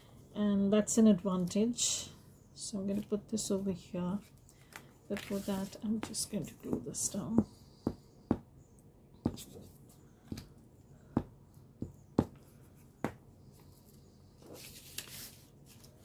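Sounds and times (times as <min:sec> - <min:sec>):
paper rustling: 0:14.4 - 0:16.0.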